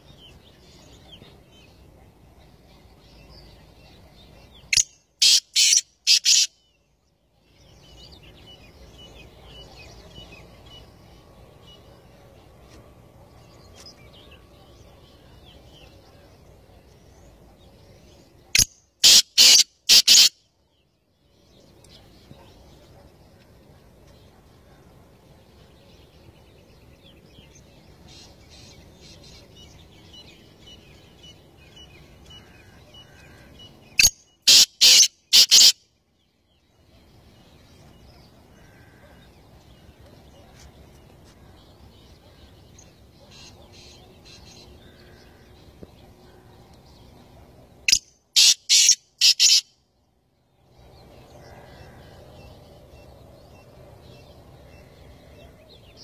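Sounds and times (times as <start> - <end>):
bird calling sharp notes: 4.7 - 6.5, 18.6 - 20.3, 34.0 - 35.8, 47.9 - 49.6.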